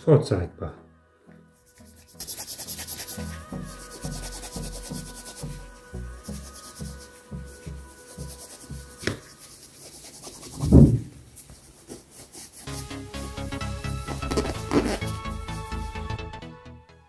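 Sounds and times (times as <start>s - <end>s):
cloth rubbing back and forth: 1.6s - 15.8s
dull handling thump: 10.6s - 11.1s.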